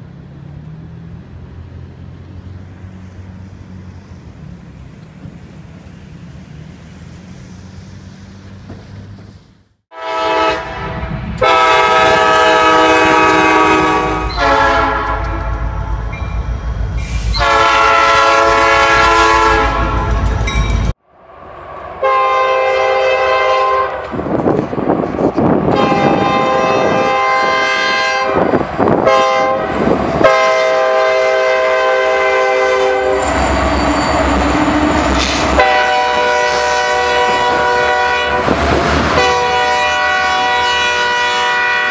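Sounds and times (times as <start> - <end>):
train rumbling and clattering: 0.0 - 9.6, 10.6 - 41.9
locomotive air horns: 9.9 - 16.1, 17.0 - 20.4, 22.0 - 24.1, 25.7 - 34.4, 35.1 - 41.9.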